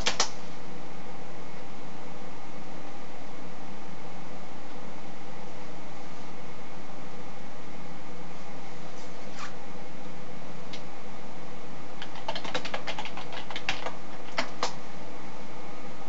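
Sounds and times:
computer keyboard typing: 0:12.0 - 0:14.8.

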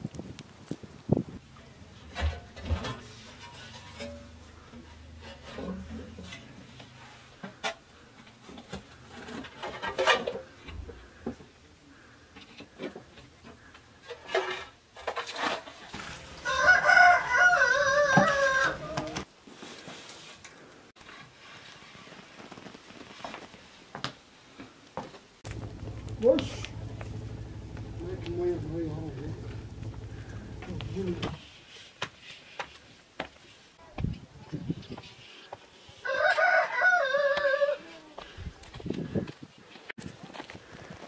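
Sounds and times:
metal dustpan scraping ash: 0:02.1 - 0:07.3, 0:29.2 - 0:31.4
rooster crowing: 0:16.4 - 0:19.1, 0:36.0 - 0:37.8.

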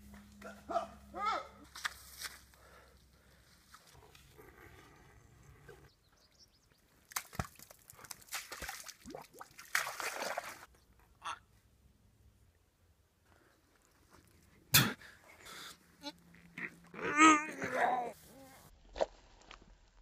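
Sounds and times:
feet wading through mud: 0:07.0 - 0:10.7.

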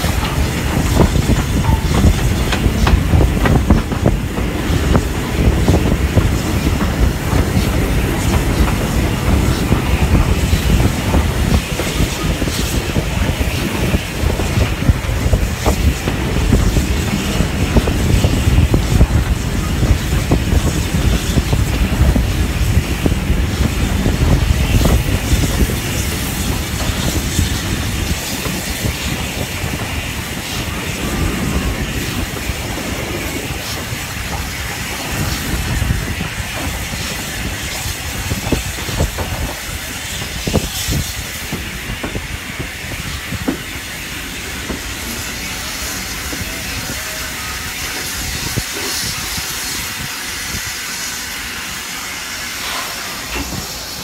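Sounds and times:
heavy low rumble: 0:00.0 - 0:28.1
train wheels clicking over rail joints: 0:00.0 - 0:51.1, 0:52.5 - 0:54.0
steam hissing: 0:00.0 - 0:54.0.

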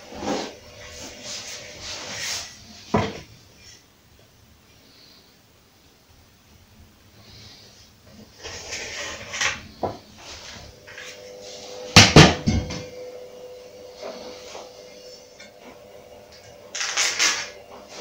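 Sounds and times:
tools knocking on floor: 0:12.0 - 0:12.9.

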